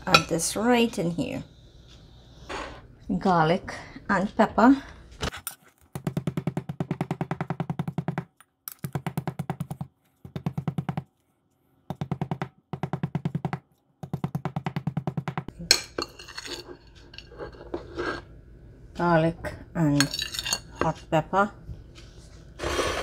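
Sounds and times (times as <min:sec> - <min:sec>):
fork scraping a plate: 0:16.0 - 0:18.3, 0:20.0 - 0:21.0.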